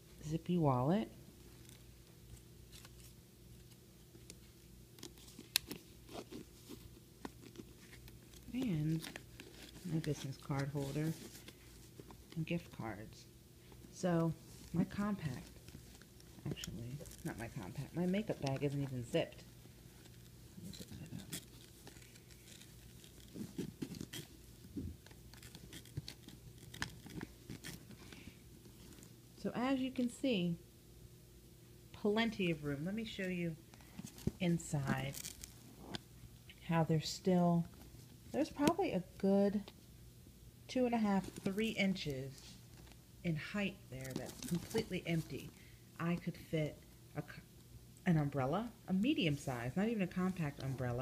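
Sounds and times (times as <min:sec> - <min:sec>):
faint steady hum: 0:00.0 - 0:51.0
wallet clicks and rustling: 0:01.6 - 0:12.5, 0:13.8 - 0:29.2, 0:33.8 - 0:36.1, 0:44.0 - 0:45.3
handbag handling clicks and rustles: 0:34.0 - 0:36.0, 0:44.0 - 0:45.6.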